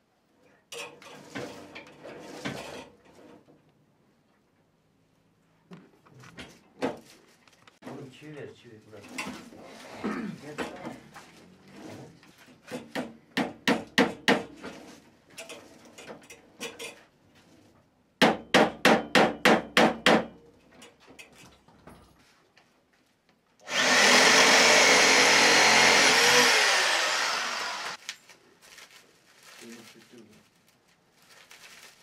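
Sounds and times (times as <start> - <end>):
hammer driving nails: 12.7 - 14.6, 18.2 - 20.3, 23.7 - 28.0
electric motor running: 23.7 - 28.0.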